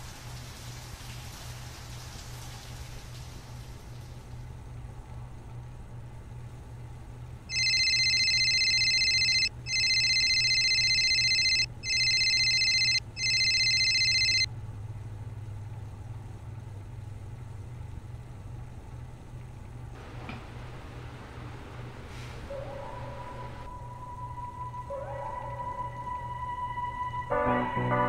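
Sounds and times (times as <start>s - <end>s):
low steady hum: 0.1s - 28.0s
phone ringtone: 7.5s - 14.5s.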